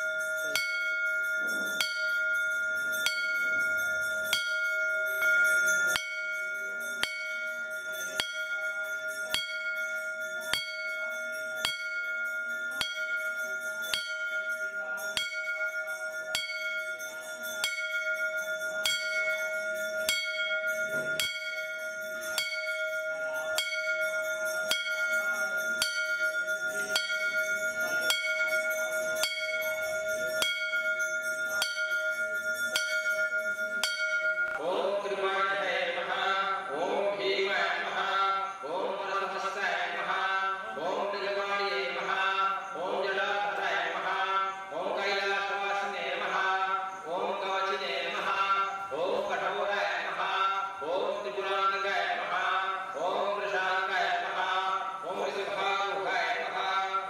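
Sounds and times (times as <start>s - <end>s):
bell ringing: 0.0s - 57.0s.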